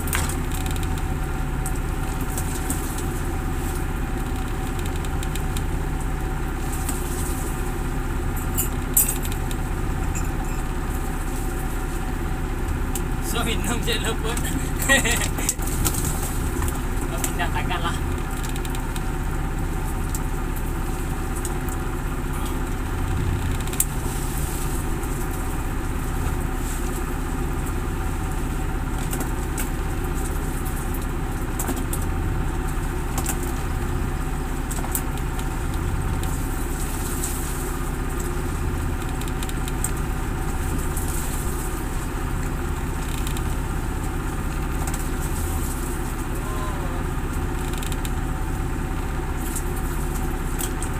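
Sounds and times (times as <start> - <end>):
boat engine running: 0.0 - 50.9.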